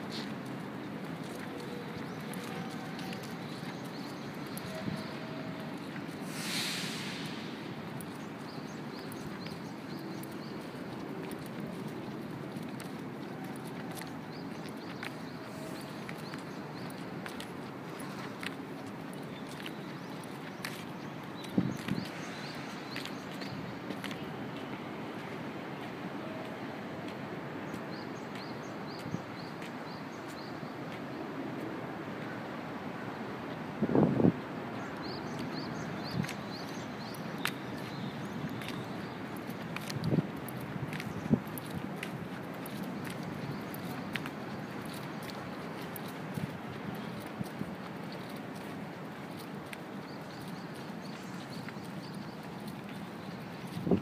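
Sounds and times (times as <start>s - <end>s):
footsteps on paving: 0.0s - 6.3s, 6.9s - 32.3s, 35.0s - 54.0s
city background rush: 0.0s - 54.0s
brief hiss: 6.2s - 7.7s.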